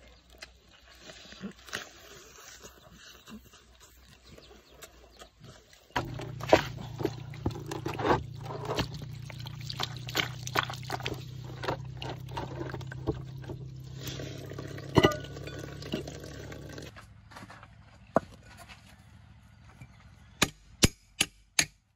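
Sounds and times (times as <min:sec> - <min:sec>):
wet splashes and squelches: 0:05.9 - 0:16.9
water pouring from spout: 0:06.0 - 0:16.9.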